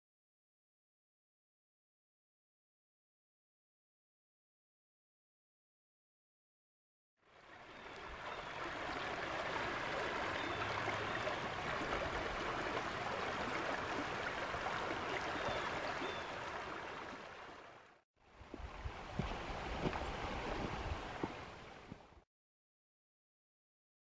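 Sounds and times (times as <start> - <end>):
river water babbling over rocks: 7.3 - 22.2.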